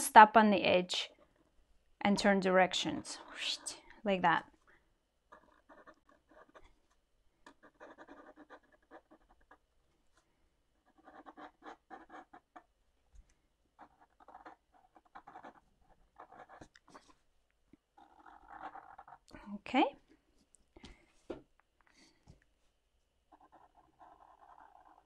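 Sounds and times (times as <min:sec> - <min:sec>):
marker scratching on paper: 0:05.3 - 0:06.7, 0:07.4 - 0:09.6, 0:10.8 - 0:12.7, 0:13.8 - 0:17.2, 0:23.3 - 0:25.0.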